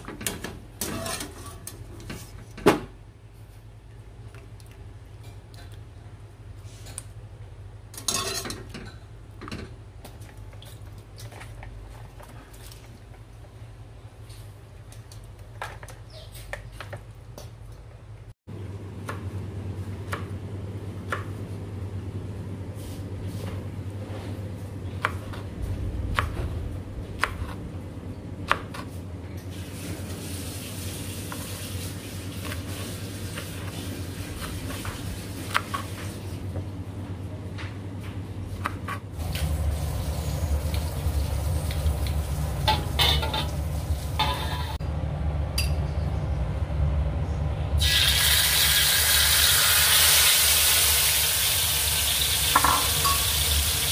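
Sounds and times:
metal utensils clinking on dishes: 0.8s - 1.8s, 8.0s - 9.7s, 42.7s - 43.6s, 44.2s - 44.8s
steady low hum: 36.3s - 47.9s
food sizzling in hot oil: 47.8s - 53.9s.

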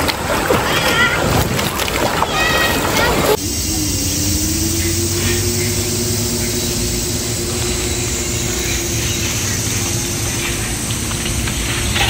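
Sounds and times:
steady machine hum: 3.2s - 12.0s
low steady tone: 3.4s - 12.0s.

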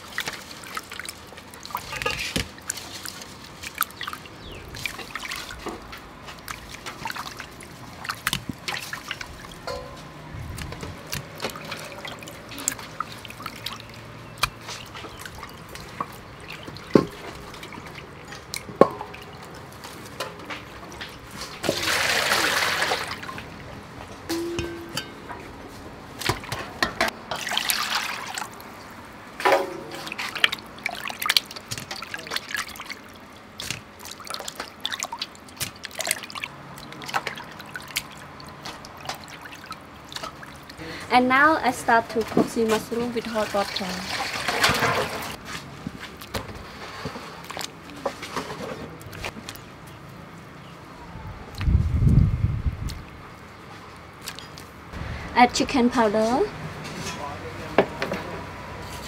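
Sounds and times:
water dripping and trickling: 0.0s - 25.4s, 26.1s - 48.4s, 49.0s - 50.7s, 51.5s - 56.2s
metal bowls clicking and knocking: 9.6s - 10.2s, 24.3s - 25.5s
water pouring from scoop: 21.6s - 23.4s, 27.3s - 28.6s, 43.2s - 45.4s.

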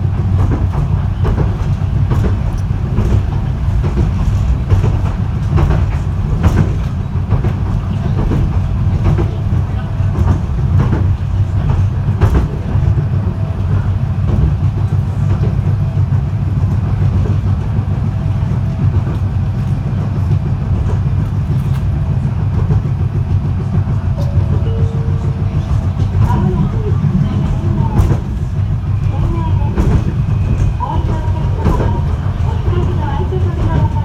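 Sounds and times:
tram wheels and motors rumbling: 0.0s - 34.0s
wheels clicking over track: 0.0s - 34.0s.

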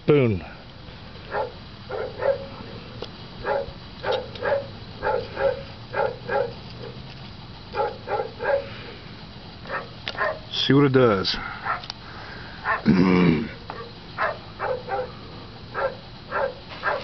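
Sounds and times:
dog barking: 1.3s - 2.6s, 3.4s - 7.0s, 7.7s - 8.7s, 9.6s - 10.5s, 11.6s - 11.9s, 12.6s - 12.9s, 13.7s - 17.0s.

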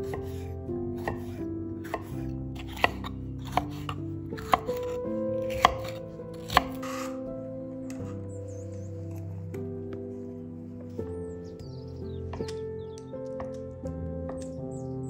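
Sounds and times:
background music: 0.0s - 15.0s
knife chopping on wooden board: 1.0s - 7.2s.

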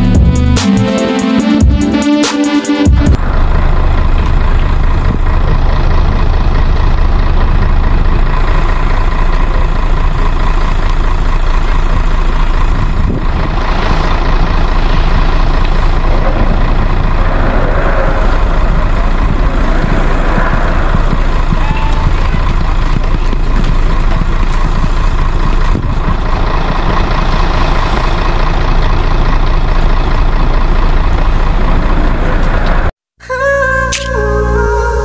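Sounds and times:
music: 0.0s - 3.2s, 33.4s - 35.0s
loud low rumble: 3.0s - 32.9s.

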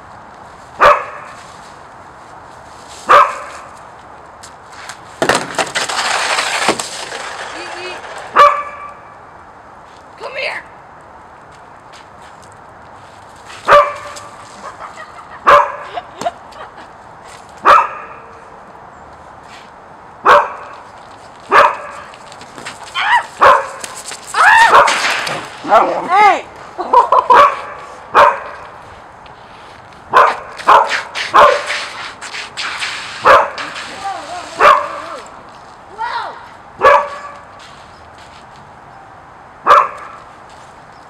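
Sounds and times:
puppy barking: 0.8s - 1.3s, 3.1s - 3.5s, 8.4s - 8.9s, 13.7s - 14.2s, 15.4s - 15.9s, 17.6s - 18.2s, 20.2s - 20.7s, 21.5s - 22.0s, 23.4s - 23.8s, 27.2s - 28.6s, 30.1s - 31.7s, 33.2s - 33.6s, 34.6s - 35.0s, 36.8s - 37.4s, 39.7s - 40.2s.

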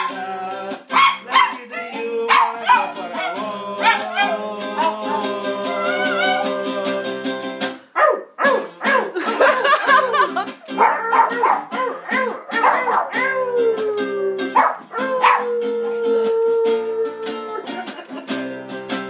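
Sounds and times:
strummed acoustic guitar: 0.0s - 16.2s, 17.2s - 19.0s
dog howling and yipping: 0.9s - 6.9s, 8.0s - 9.2s, 10.8s - 17.6s.

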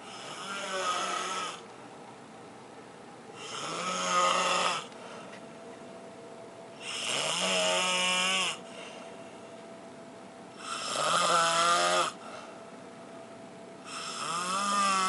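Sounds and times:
person snoring: 0.1s - 1.6s, 3.4s - 4.9s, 6.8s - 8.6s, 10.6s - 12.2s, 13.9s - 15.0s.

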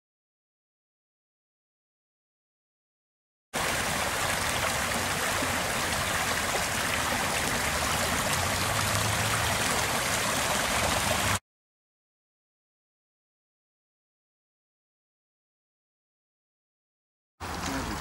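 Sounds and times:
brook rushing over stones: 3.6s - 11.4s.

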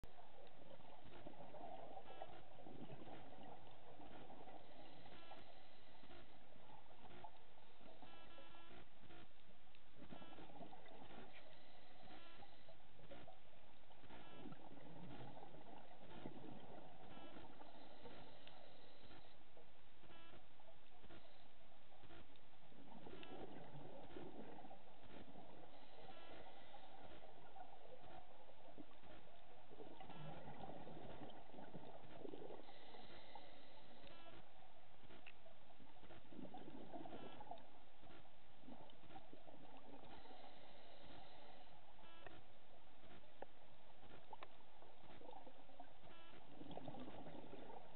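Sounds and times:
steady crackling: 0.0s - 47.9s
regulator inhale buzzing: 17.2s - 19.4s, 32.3s - 34.5s, 40.0s - 42.4s
exhaled air bubbles: 46.5s - 47.9s.

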